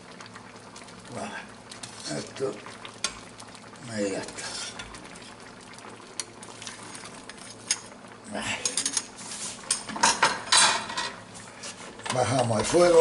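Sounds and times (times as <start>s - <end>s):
broth bubbling: 0.0s - 7.4s.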